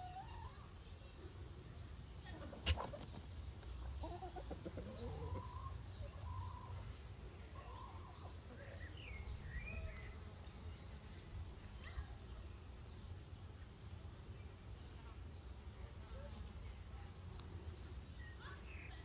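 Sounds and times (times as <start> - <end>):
chickens clucking: 0.0 - 9.0
small birds chirping: 0.0 - 19.0.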